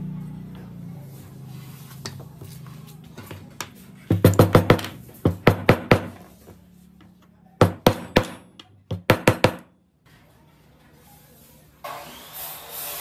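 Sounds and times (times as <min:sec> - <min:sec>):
hammer tapping wooden sticks: 0:03.3 - 0:06.2, 0:07.6 - 0:09.7.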